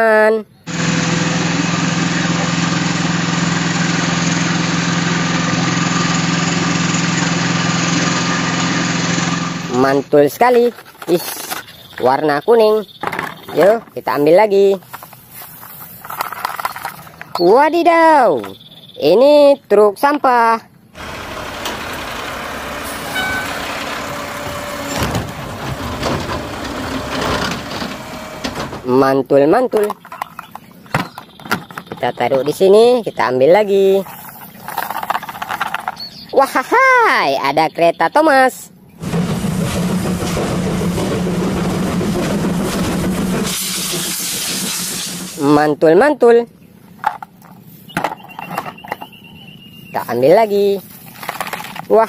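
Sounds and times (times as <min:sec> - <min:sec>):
hydraulic arm whine: 0:00.7 - 0:09.8, 0:21.0 - 0:28.9
diesel engine running: 0:00.7 - 0:10.1, 0:20.9 - 0:28.9, 0:38.9 - 0:45.5
trash cart clanks: 0:10.6 - 0:14.2, 0:21.0 - 0:28.9.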